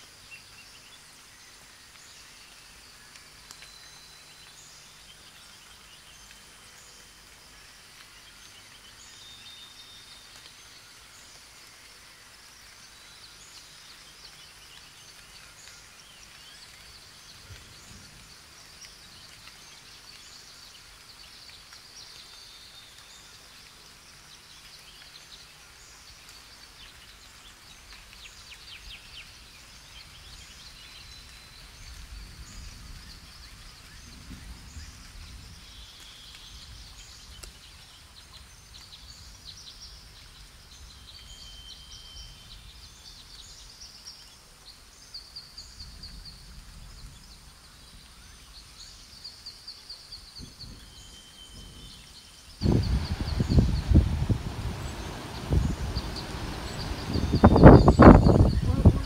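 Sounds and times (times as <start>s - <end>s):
birds chirping and trilling: 47.1s - 59.0s.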